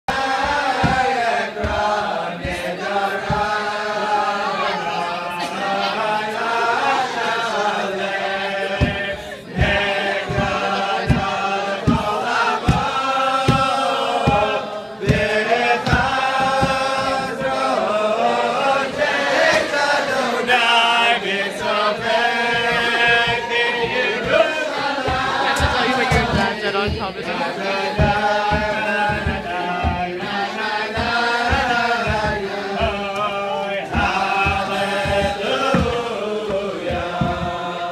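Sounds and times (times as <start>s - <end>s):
group singing in unison: 0.0s - 37.9s.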